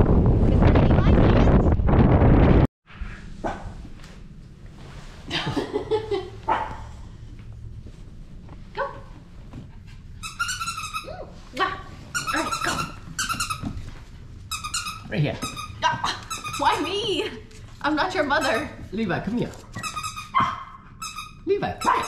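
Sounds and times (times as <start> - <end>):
puppy yapping: 19.7 - 20.9, 21.8 - 22.0.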